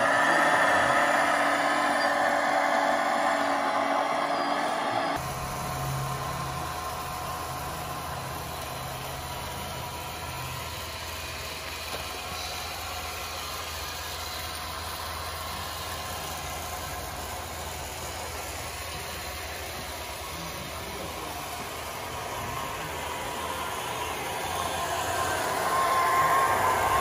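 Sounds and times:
low tone: 0:00.0 - 0:10.4
model engine idling hum: 0:00.0 - 0:27.0.

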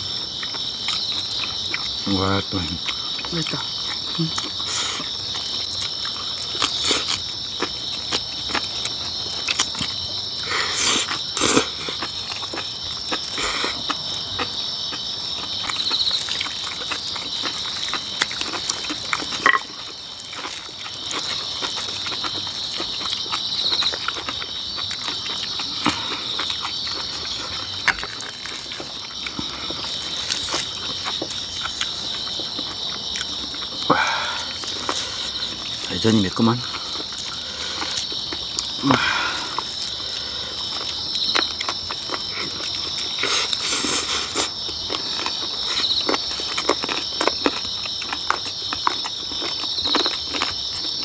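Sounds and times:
crickets chirping: 0:00.0 - 0:51.0
people chewing: 0:00.0 - 0:51.0.

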